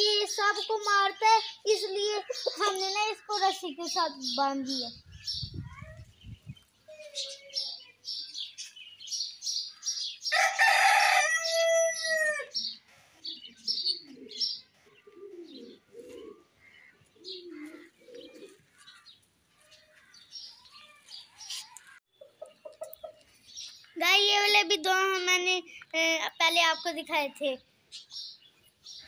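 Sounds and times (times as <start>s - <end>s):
small birds chirping: 0.0s - 11.0s, 11.6s - 29.0s
rooster crowing: 10.3s - 12.6s
low clucking calls: 21.5s - 23.3s.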